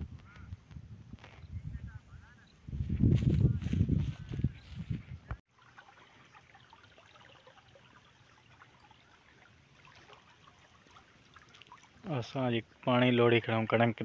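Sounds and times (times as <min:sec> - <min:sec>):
water trickling in a channel: 0:05.5 - 0:13.7.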